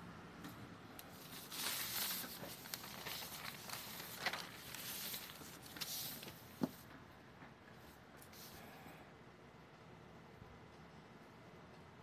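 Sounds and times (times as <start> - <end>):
paper rustling and sliding: 1.1 - 6.8.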